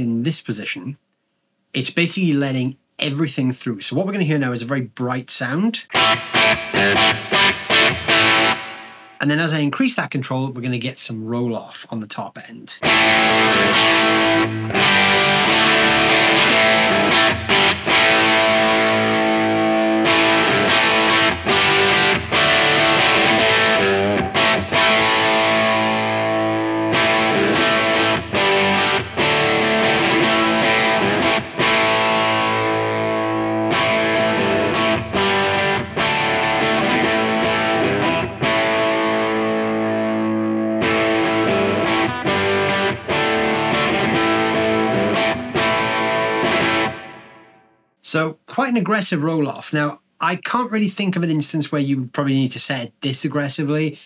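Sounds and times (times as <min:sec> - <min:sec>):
overdriven electric guitar strumming: 0:05.9 - 0:09.2, 0:12.8 - 0:47.7.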